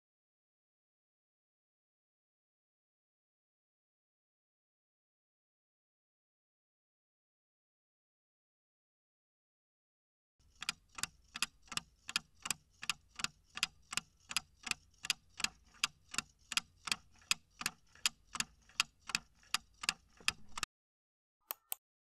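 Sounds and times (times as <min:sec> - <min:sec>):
clock ticking: 0:10.4 - 0:20.7
short clicks: 0:21.4 - 0:21.8.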